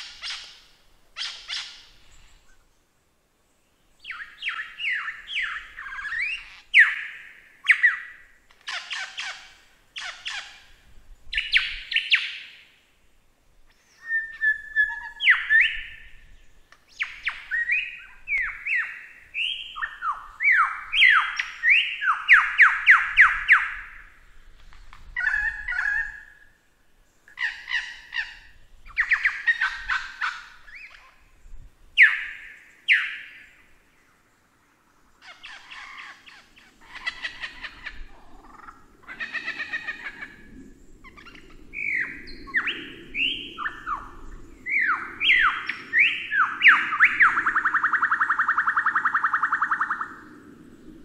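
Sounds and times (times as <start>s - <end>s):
lyrebird song: 0.0s - 2.9s, 3.5s - 12.6s, 13.7s - 24.2s, 25.0s - 51.0s.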